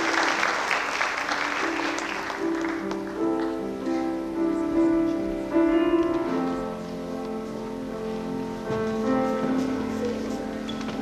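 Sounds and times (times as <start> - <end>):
applause: 0.0 - 3.6
slow piano notes and chords: 0.0 - 11.0.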